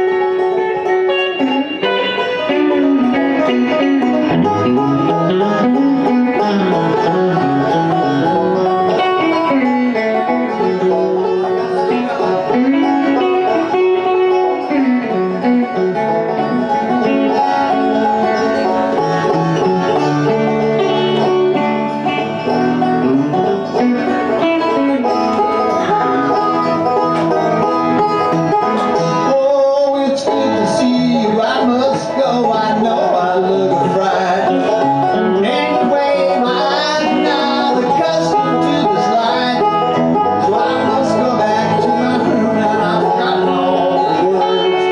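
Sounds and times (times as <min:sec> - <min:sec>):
banjo picking: 0:00.0 - 0:44.9
electric guitar: 0:00.0 - 0:44.9.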